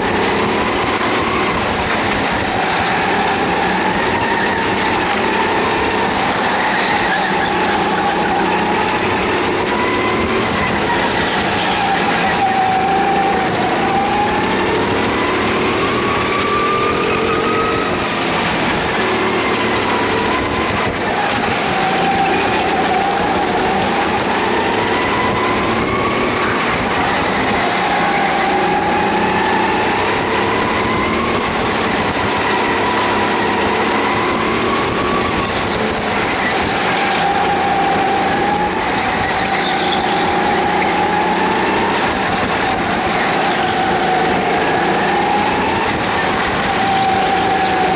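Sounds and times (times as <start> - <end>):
go-kart engine accelerating: 0.0 - 47.9
road noise: 0.0 - 47.9.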